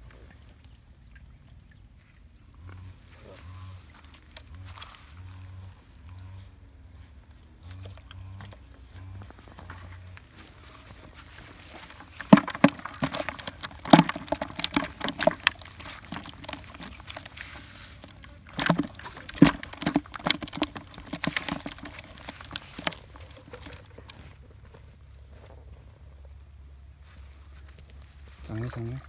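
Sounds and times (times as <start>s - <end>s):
fish splashing in plastic bucket: 7.7s - 24.8s.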